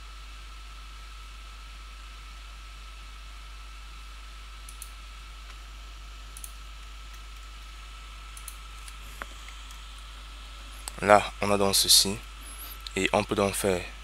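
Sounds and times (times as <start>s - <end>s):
faint high whine: 0.0s - 14.0s
microphone hiss: 0.0s - 14.0s
computer mouse clicks: 4.6s - 5.6s, 6.3s - 7.7s, 8.3s - 10.1s.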